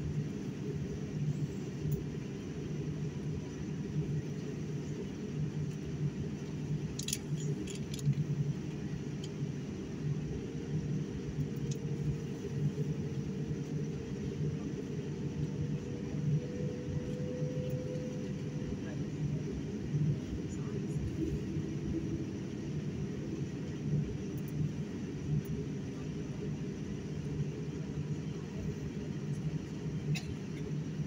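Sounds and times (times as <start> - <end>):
airliner cabin rumble: 0.0 - 31.0
light metallic clicks: 6.4 - 8.2.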